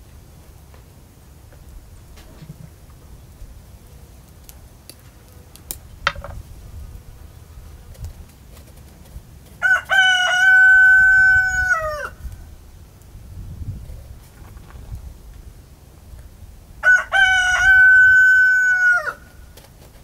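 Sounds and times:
rooster crowing: 0:09.6 - 0:12.2, 0:16.8 - 0:19.3.

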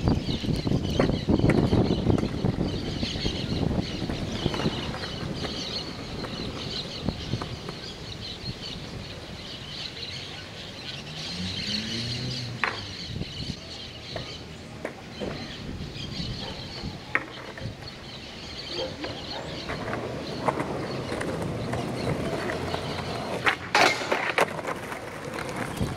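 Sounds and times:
birds chirping: 0:00.0 - 0:25.9
skateboard knocking: 0:00.9 - 0:02.9, 0:03.5 - 0:08.0, 0:17.0 - 0:18.0, 0:18.9 - 0:25.9.

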